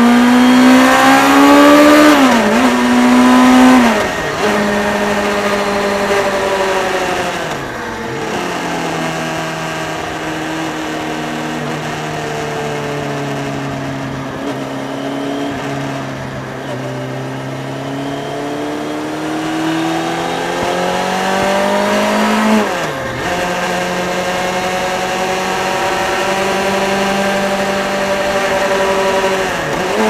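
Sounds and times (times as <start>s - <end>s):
motorcycle engine revving: 0.0s - 30.0s.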